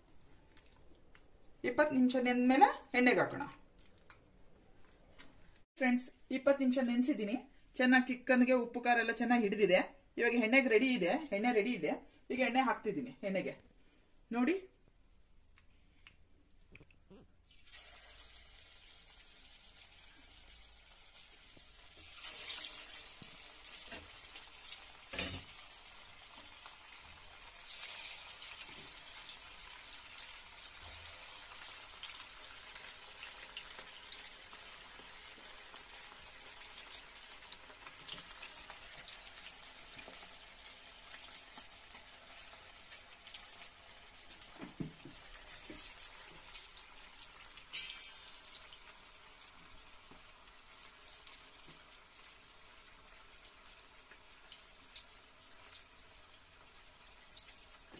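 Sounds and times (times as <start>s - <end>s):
chicken sizzling in hot oil: 17.5s - 57.9s.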